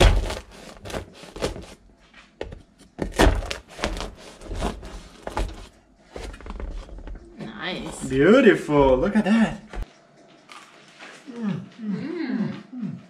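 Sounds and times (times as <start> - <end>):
knife crunching through bread crust: 0.0 - 1.8.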